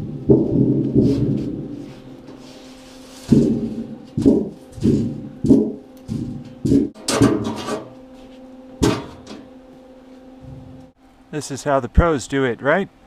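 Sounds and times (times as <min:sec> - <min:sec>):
faint hum: 0:00.0 - 0:13.0
boots stamping on steel sheet: 0:03.3 - 0:07.9.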